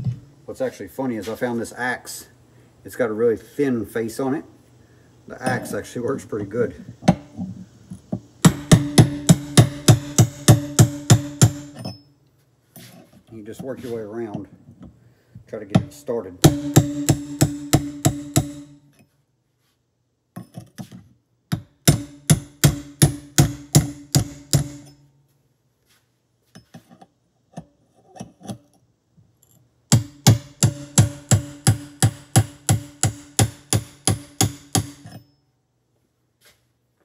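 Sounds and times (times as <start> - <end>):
hammer striking metal: 8.4 - 12.0, 15.7 - 18.8, 21.5 - 25.0, 29.9 - 35.3.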